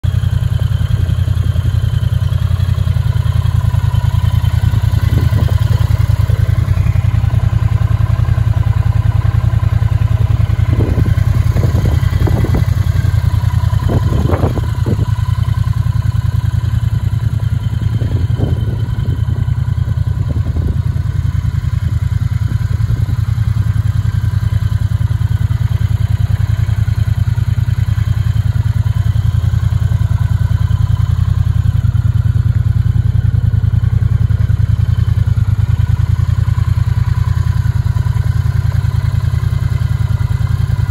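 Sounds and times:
motorcycle engine idling: 0.0s - 40.9s.

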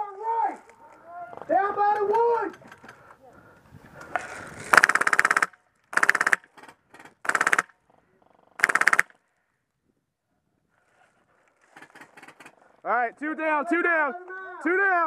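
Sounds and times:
airsoft gun full-auto bursts: 4.7s - 6.5s, 7.2s - 7.7s, 8.6s - 9.2s.

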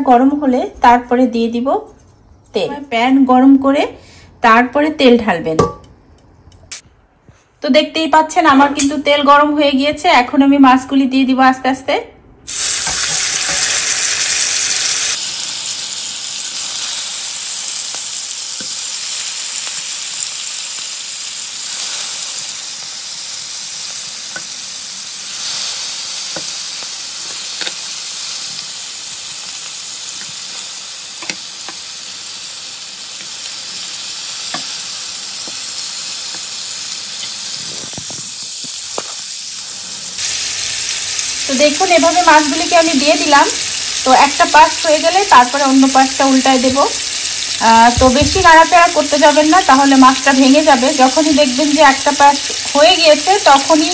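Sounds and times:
fish sizzling in hot oil: 12.5s - 53.9s
oil spitting and popping: 33.2s - 39.6s.

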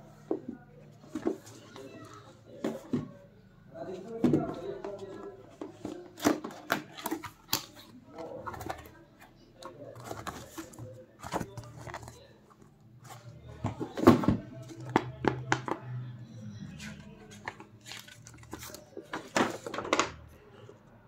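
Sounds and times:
cardboard and paper rustling: 4.0s - 9.0s, 9.6s - 15.8s, 16.8s - 20.2s.

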